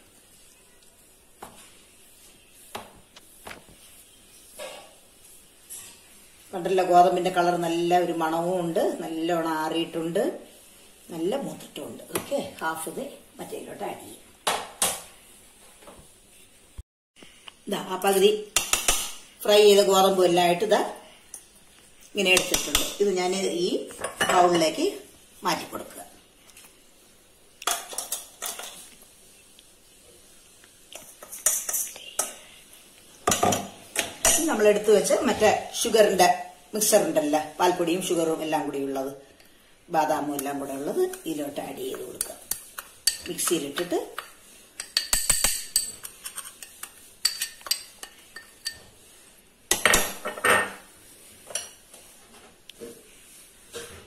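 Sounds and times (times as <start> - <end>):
spoon scraping bowl: 41.1 - 49.0
metal spoon clinking on bowls: 42.2 - 48.9.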